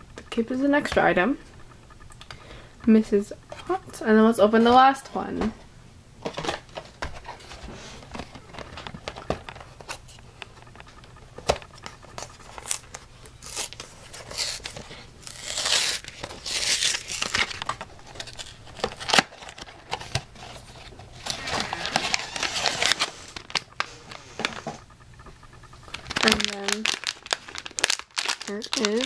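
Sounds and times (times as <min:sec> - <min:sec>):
cardboard tearing and crinkling: 0:12.0 - 0:24.6, 0:25.9 - 0:29.0.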